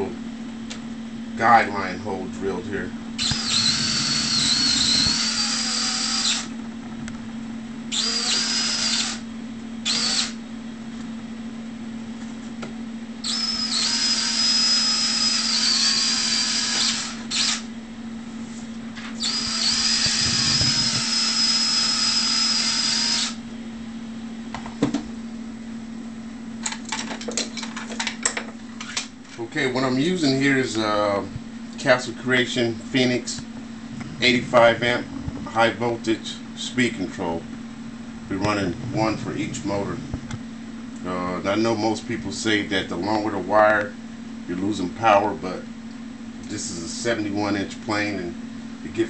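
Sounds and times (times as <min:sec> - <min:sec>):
steady low hum: 0:00.0 - 0:49.0
cordless drill whining: 0:03.2 - 0:06.5, 0:07.9 - 0:09.2, 0:09.8 - 0:10.4, 0:13.2 - 0:17.7, 0:19.2 - 0:23.4.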